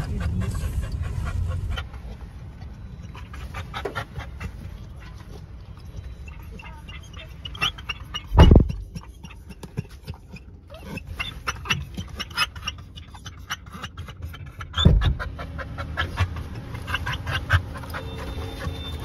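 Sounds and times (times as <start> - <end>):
steady low rumble: 0.0 - 6.2
dog panting: 0.0 - 19.0.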